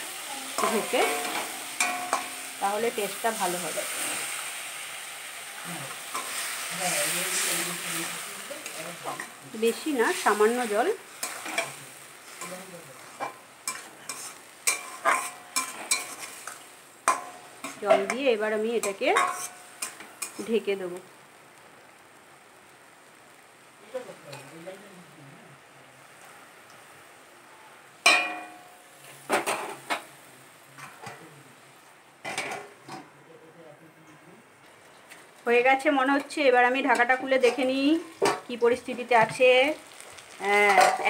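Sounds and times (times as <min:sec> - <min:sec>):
faint sizzle: 0:00.0 - 0:41.0
metal cookware clanking: 0:00.6 - 0:02.6, 0:12.4 - 0:18.2, 0:18.8 - 0:20.4, 0:28.1 - 0:28.7, 0:32.2 - 0:33.1, 0:36.2 - 0:38.6, 0:40.5 - 0:41.0
spatula scraping a pan: 0:05.9 - 0:18.2, 0:18.8 - 0:20.4, 0:39.2 - 0:41.0.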